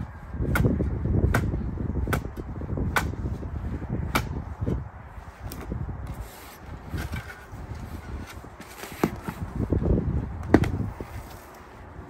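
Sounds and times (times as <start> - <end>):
earth scraping and shifting: 5.3 - 10.0.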